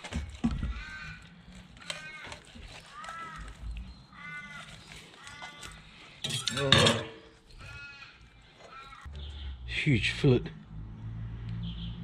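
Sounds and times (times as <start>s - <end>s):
bird calling: 0.5s - 9.6s
knife scraping through fish: 1.7s - 3.7s.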